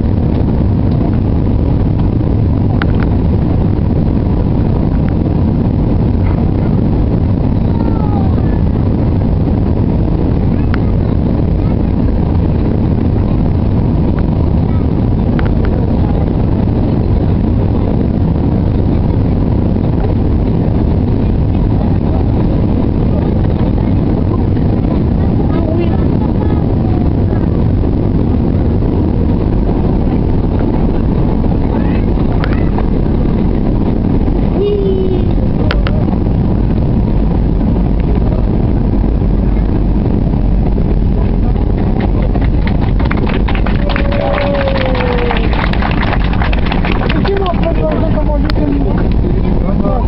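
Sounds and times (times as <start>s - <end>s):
jet engine roar in cabin: 0.0s - 50.0s.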